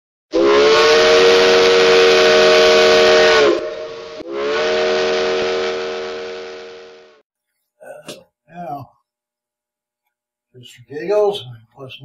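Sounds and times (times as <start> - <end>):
steam locomotive whistle: 0.3 - 7.2
steam rushing: 0.8 - 7.2.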